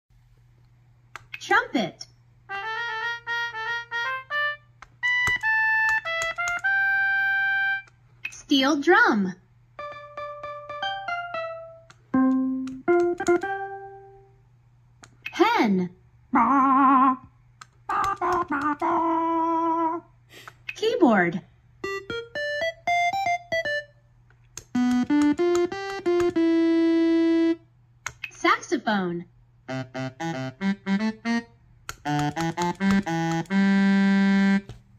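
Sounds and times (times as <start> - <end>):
electronic keyboard notes: 2.5 - 7.9, 9.8 - 14.4, 17.9 - 20.0, 21.8 - 24.0, 24.6 - 27.7, 29.7 - 34.8
electronic trumpet synthesizer notes: 2.5 - 7.9, 29.7 - 31.6, 32.2 - 34.7.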